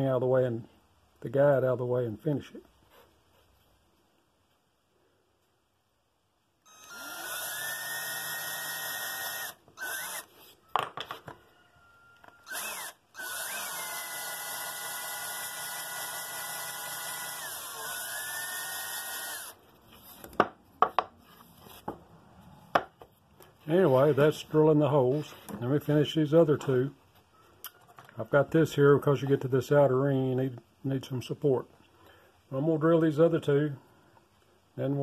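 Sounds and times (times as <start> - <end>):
electric drill whining: 6.6 - 10.5, 12.2 - 19.6.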